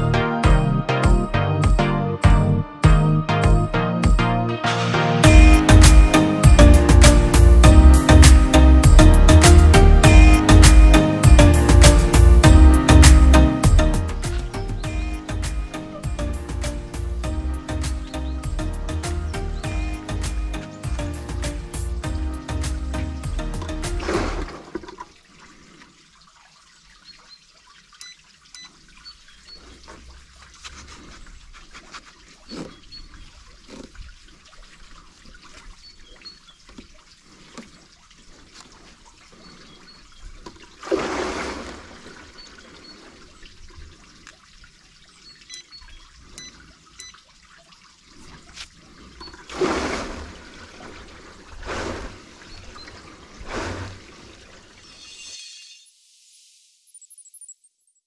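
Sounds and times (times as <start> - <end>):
water swishing in rowing tank: 20.2 - 55.2.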